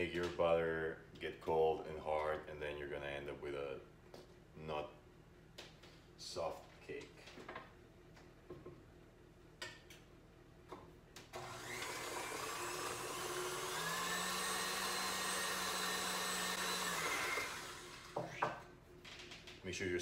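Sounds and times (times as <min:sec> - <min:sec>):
stand mixer motor whine: 0:11.4 - 0:18.1.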